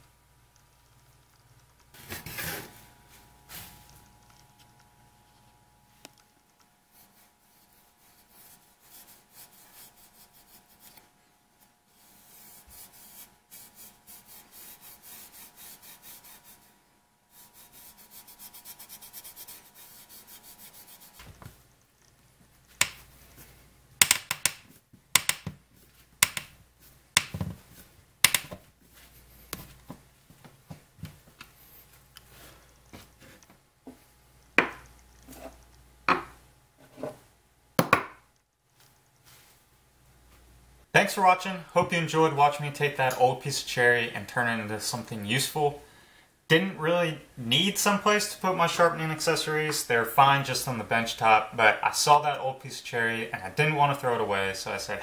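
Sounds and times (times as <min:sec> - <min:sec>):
cloth rubbing wood: 0:11.9 - 0:16.7
screws driven into wood clicking: 0:24.0 - 0:24.6, 0:25.2 - 0:25.5, 0:26.2 - 0:26.5, 0:28.2 - 0:28.5.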